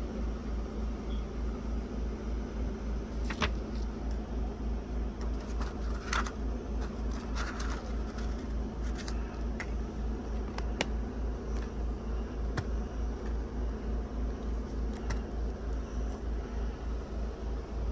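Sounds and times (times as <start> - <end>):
pulsing mechanical hum: 0.0 - 17.9
plastic cases clicking and rustling: 5.2 - 9.7.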